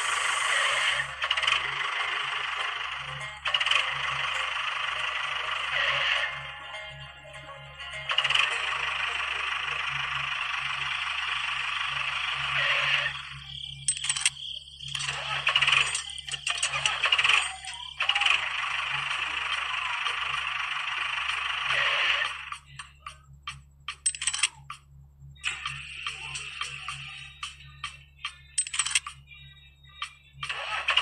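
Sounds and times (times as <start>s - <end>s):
small motor whirring with rattle: 0.0s - 6.4s, 8.1s - 23.0s
sharp clicks: 13.1s - 18.6s.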